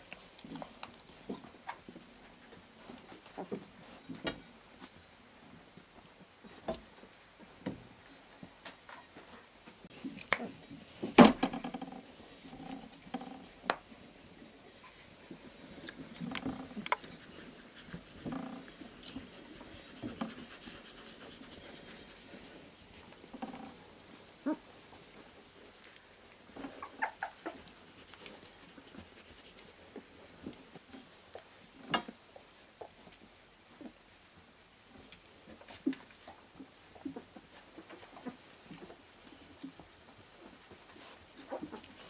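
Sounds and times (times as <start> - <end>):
puppies whimpering and squeaking: 26.6 - 27.7.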